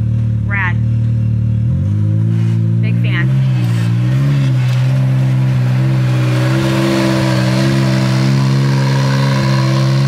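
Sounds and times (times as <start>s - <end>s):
engine idling: 0.0s - 6.5s.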